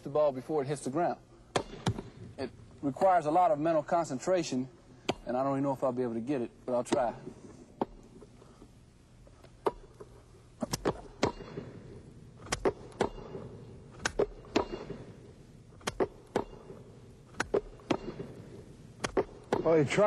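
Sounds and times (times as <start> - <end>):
hands slapping basketball: 9.5 - 11.6, 12.4 - 14.9, 15.8 - 16.6, 17.3 - 18.3, 19.0 - 19.8.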